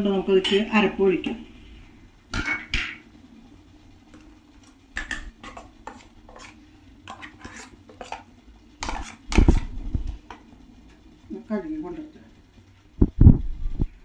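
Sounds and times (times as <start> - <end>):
ladle scraping a steel jar: 5.4 - 9.7.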